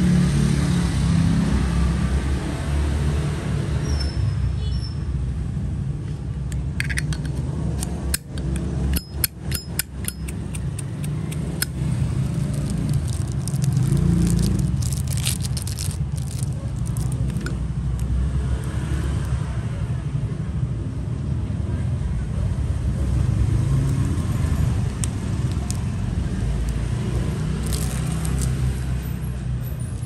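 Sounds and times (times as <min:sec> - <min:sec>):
metal lighters clicking: 0:07.8 - 0:12.0.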